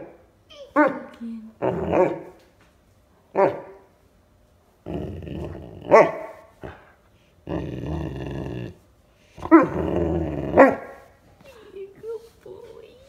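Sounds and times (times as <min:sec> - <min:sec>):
puppy growling: 0:01.0 - 0:02.3, 0:04.8 - 0:11.0.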